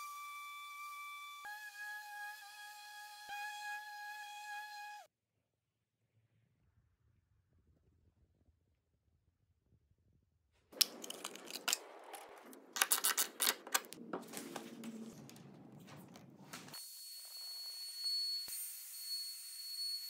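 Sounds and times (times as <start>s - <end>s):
router clicks and metallic clatter: 10.8s - 14.0s
thin high whine: 16.7s - 20.0s.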